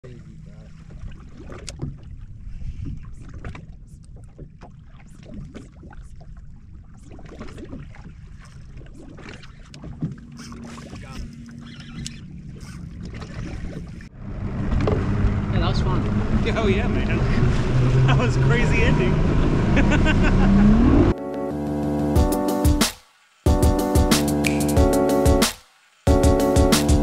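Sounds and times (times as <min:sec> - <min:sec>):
waves lapping against boat hull: 0:00.0 - 0:19.6.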